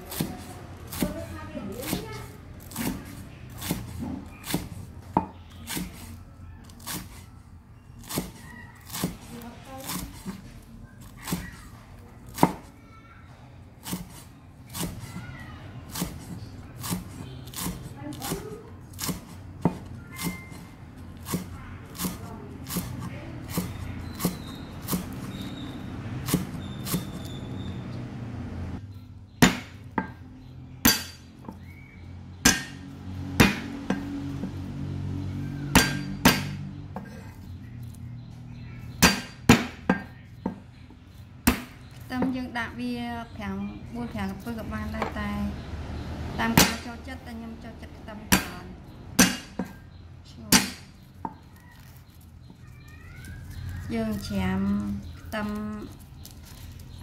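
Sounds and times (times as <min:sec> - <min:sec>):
cleaver chopping on wooden block: 0:15.9 - 0:25.6, 0:26.2 - 0:27.3, 0:29.4 - 0:30.2, 0:32.4 - 0:34.6, 0:35.6 - 0:37.2, 0:38.9 - 0:40.6, 0:41.4 - 0:42.3, 0:46.5 - 0:46.9, 0:48.3 - 0:49.8, 0:50.5 - 0:51.4.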